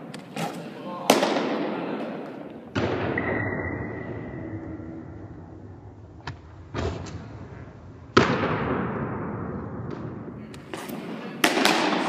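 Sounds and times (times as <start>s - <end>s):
baseballs smacking into mitts: 0.0s - 3.0s, 9.8s - 12.0s.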